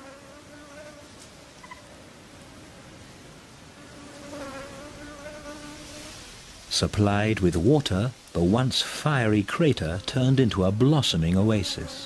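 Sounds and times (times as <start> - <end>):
flying insects buzzing: 0.0 - 2.0, 3.5 - 6.7, 9.3 - 12.0.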